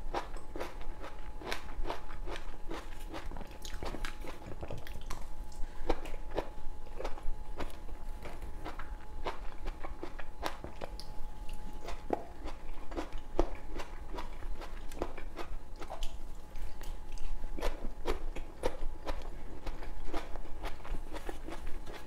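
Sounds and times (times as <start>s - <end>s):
chewing tomato: 0.1s - 22.0s.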